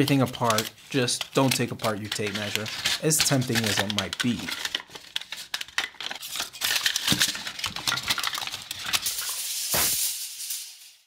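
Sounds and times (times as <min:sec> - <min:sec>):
tape measure blade rattling: 0:07.8 - 0:11.0
short rushing hiss: 0:09.7 - 0:10.2.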